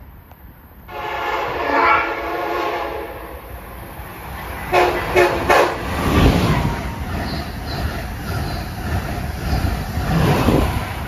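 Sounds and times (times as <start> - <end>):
train rumble: 0.0 - 11.0
train air horn: 0.9 - 3.5, 4.7 - 5.9.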